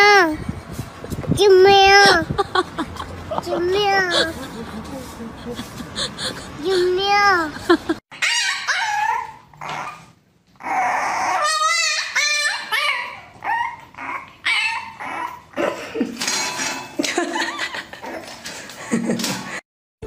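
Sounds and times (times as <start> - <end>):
puppy whining and yipping: 8.2 - 15.5.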